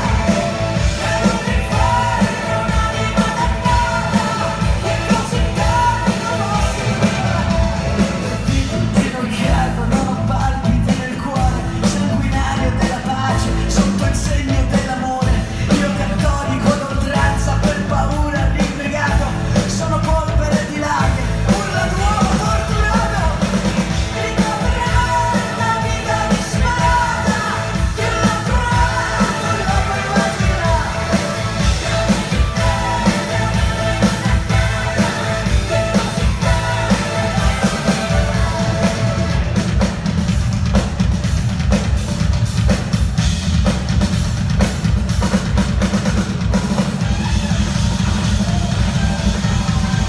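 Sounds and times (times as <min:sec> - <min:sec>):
woman singing lead: 0:00.0 - 0:19.2, 0:19.8 - 0:39.6
live rock band playing: 0:00.0 - 0:50.0.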